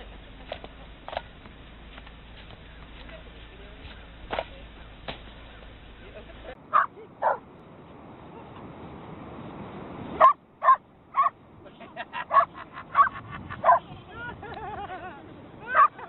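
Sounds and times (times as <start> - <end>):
dog barking: 6.7 - 7.4, 10.2 - 11.4, 12.3 - 13.8, 15.7 - 16.0.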